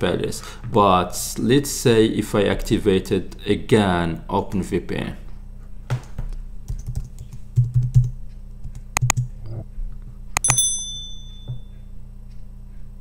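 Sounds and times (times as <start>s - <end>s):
sharp click: 10.4s - 10.7s
high ringing tone: 10.4s - 11.9s.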